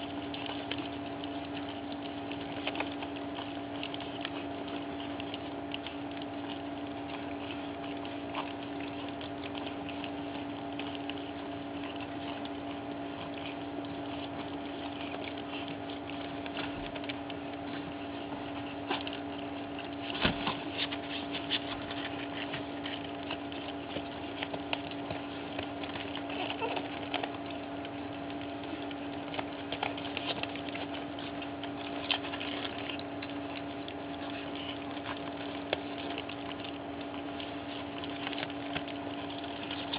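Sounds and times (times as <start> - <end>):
puppies lapping food: 0.0 - 39.9
steady hum: 0.0 - 39.9.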